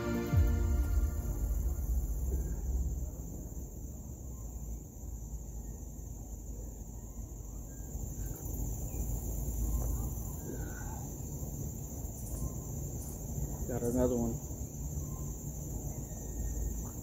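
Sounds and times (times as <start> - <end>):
low rumble: 0.0 - 5.7
insect drone: 0.0 - 17.0
faint bird calls: 0.9 - 17.0.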